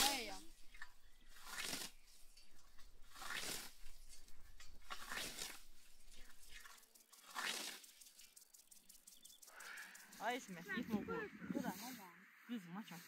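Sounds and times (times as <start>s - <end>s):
scythe swishing through grass: 1.2s - 8.3s.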